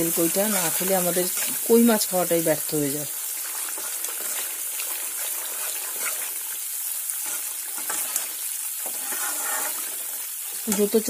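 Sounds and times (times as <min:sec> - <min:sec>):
paste sizzling in hot oil: 0:00.0 - 0:11.0
metal spatula scraping pan: 0:07.2 - 0:11.0.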